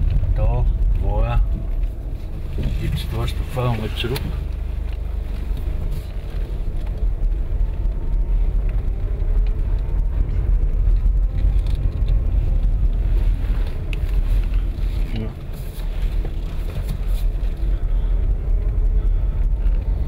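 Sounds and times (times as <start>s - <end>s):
car engine and tyres rumbling: 0.0s - 20.0s.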